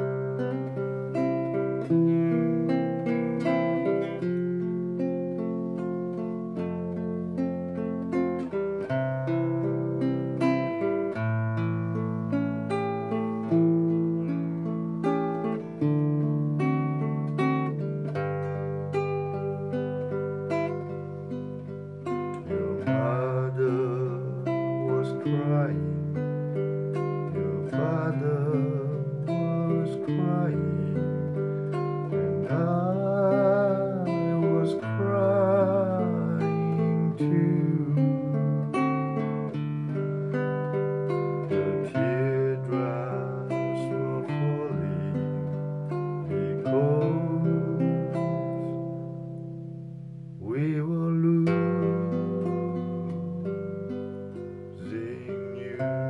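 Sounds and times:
classical guitar strumming: 0:00.0 - 0:56.0
man singing: 0:22.0 - 0:38.9, 0:41.0 - 0:48.9, 0:50.4 - 0:53.5, 0:54.6 - 0:56.0.

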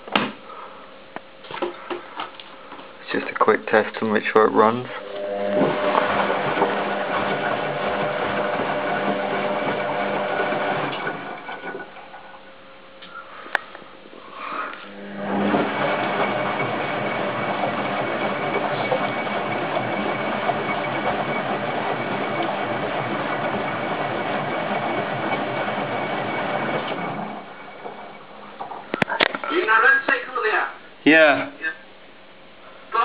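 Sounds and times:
washing machine drum tumbling: 0:05.3 - 0:12.3, 0:15.1 - 0:28.8.

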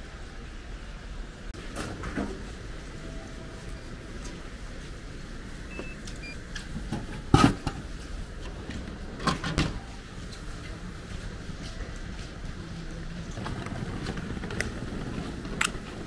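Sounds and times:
vending machine beeps: 0:05.6 - 0:06.5.

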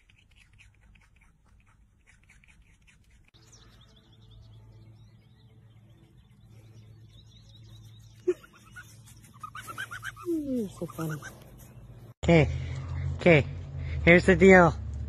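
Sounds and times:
rodent crunching carrot: 0:00.0 - 0:03.4
faint bird chirps: 0:03.4 - 0:11.8.

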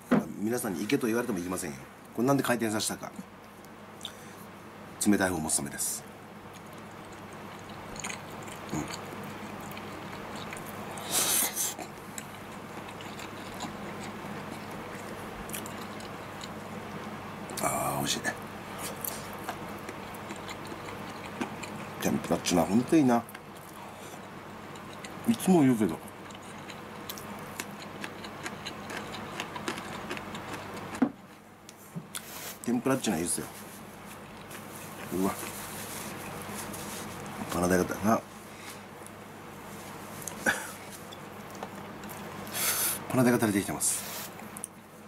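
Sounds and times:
faint steady hum: 0:00.0 - 0:45.0
soft chewing: 0:06.5 - 0:32.8, 0:33.5 - 0:37.6, 0:38.6 - 0:42.6.

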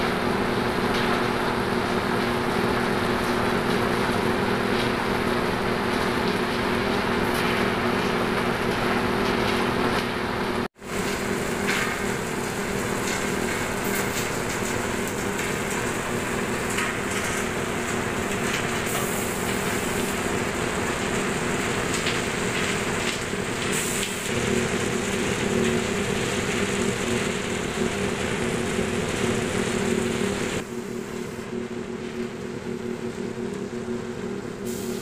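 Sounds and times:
low hum of motors: 0:00.0 - 0:35.0
burner hissing rush: 0:18.6 - 0:31.4.

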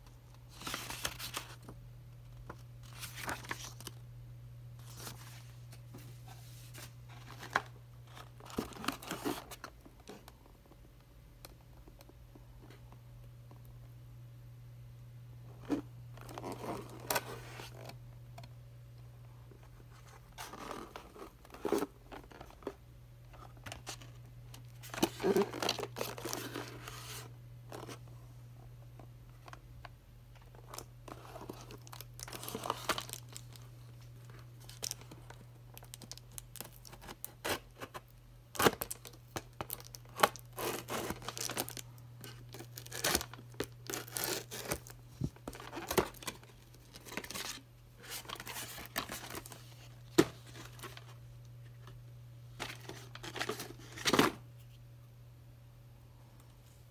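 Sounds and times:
steady low hum: 0:00.0 - 0:56.9
cardboard and tape tearing: 0:38.6 - 0:46.4.

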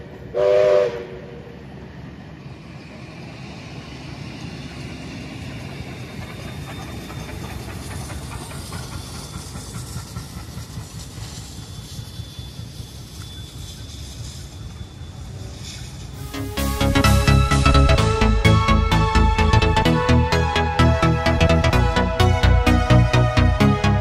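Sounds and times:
train wheels rumbling on rails: 0:00.0 - 0:24.0
steam hissing: 0:03.1 - 0:17.2.

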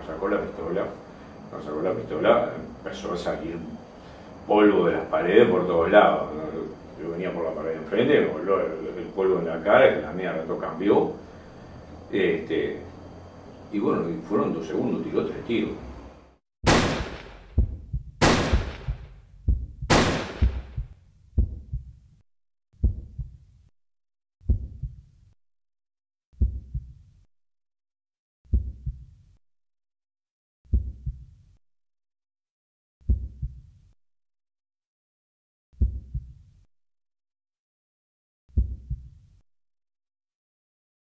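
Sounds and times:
gunshots ringing: 0:16.7 - 0:17.6, 0:18.2 - 0:19.1, 0:19.9 - 0:20.8
slow heartbeat thuds: 0:16.7 - 0:22.1, 0:22.8 - 0:23.5, 0:24.4 - 0:25.1, 0:26.4 - 0:27.0, 0:28.5 - 0:29.1, 0:30.7 - 0:31.4, 0:33.0 - 0:33.7, 0:35.8 - 0:36.5, 0:38.5 - 0:39.2.

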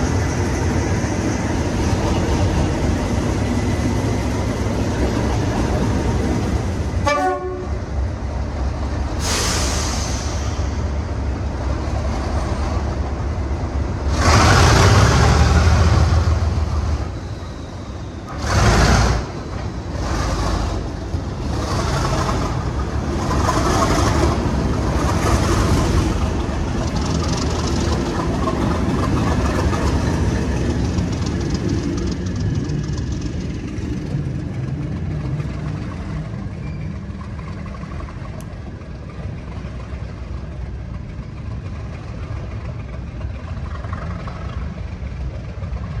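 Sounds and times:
diesel locomotive engine under load: 0:00.0 - 0:46.0.

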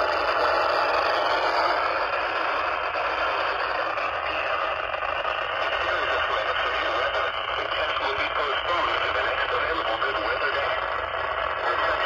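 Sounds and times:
radio static hiss: 0:04.2 - 0:04.7, 0:05.6 - 0:12.0.

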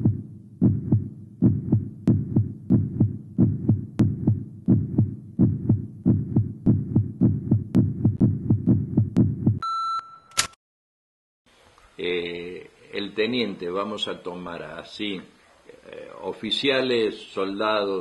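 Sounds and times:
heartbeat thumps: 0:00.0 - 0:09.6
short electronic beep: 0:09.6 - 0:10.5.

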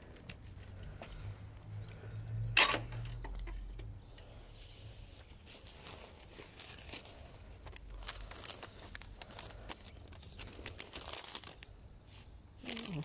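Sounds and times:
dry leaves and twigs crunching: 0:05.0 - 0:13.0.

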